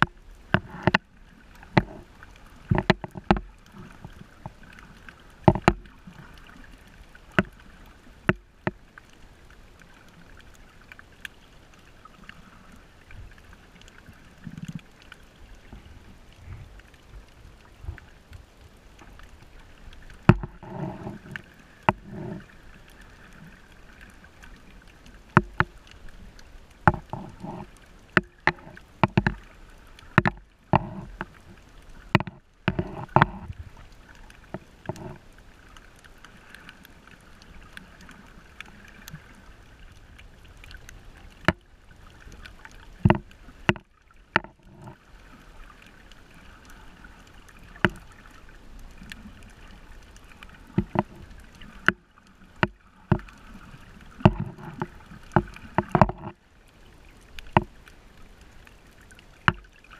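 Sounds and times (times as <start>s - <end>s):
sharp clicks and knocks: 0.0s - 1.0s, 2.7s - 4.6s, 5.4s - 5.9s, 20.2s - 22.4s, 25.4s - 25.9s, 26.8s - 29.5s, 30.1s - 31.4s, 32.1s - 33.6s, 43.0s - 45.0s, 50.7s - 51.2s, 52.6s - 53.3s, 54.2s - 56.4s
muffled underwater rushing: 0.0s - 59.9s.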